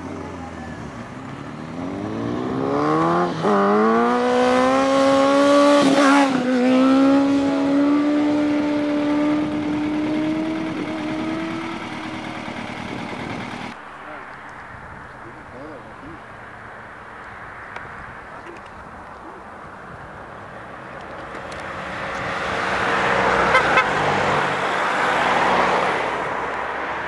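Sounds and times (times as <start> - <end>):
motorcycle engine accelerating: 0.0 - 13.8.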